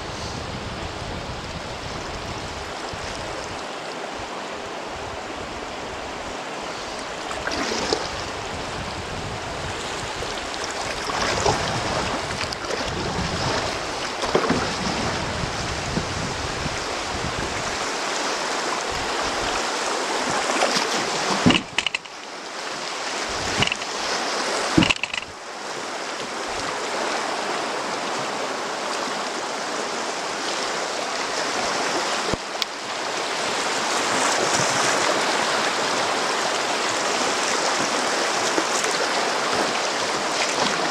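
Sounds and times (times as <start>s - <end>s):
wind buffeting microphone: 0.0s - 3.6s, 7.4s - 17.9s, 23.2s - 24.1s
river water rushing and splashing: 0.0s - 40.9s
sharp knocks: 21.4s - 22.1s, 24.8s - 25.3s.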